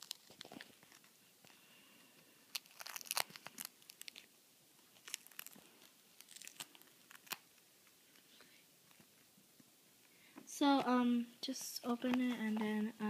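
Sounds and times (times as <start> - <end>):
stiff tape crinkling: 0.0 - 1.6, 2.5 - 8.2.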